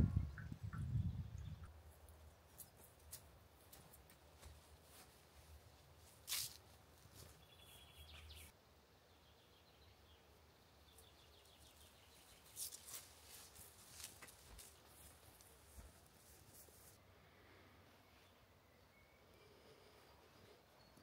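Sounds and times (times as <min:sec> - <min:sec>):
faint outdoor ambience: 0:00.0 - 0:21.0
faint high bird chirps: 0:07.3 - 0:08.5.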